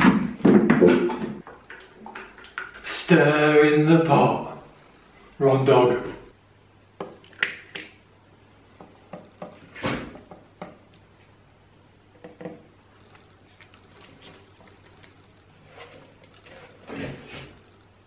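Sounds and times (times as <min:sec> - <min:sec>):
objects knocked and scraped: 0:08.8 - 0:10.8, 0:14.1 - 0:17.7.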